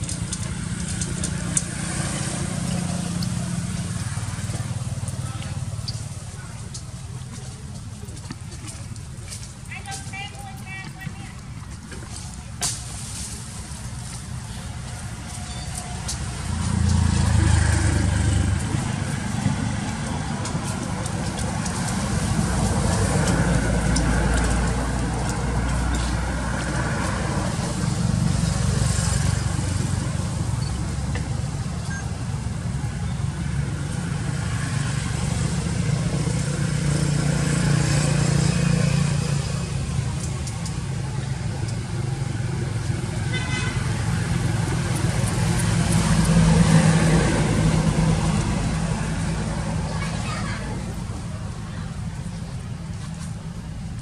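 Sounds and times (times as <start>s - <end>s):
vehicle engines passing: 0.0s - 54.0s.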